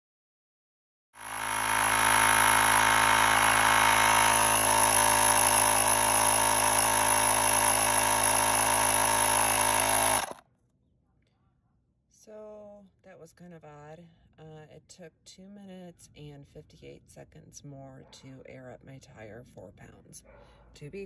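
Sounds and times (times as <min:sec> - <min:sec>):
air compressor buzzing with whine: 0:01.2 - 0:10.4.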